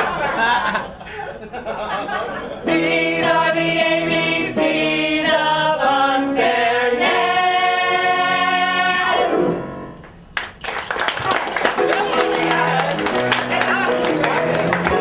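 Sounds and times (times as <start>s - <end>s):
choir singing in harmony: 2.6s - 9.9s.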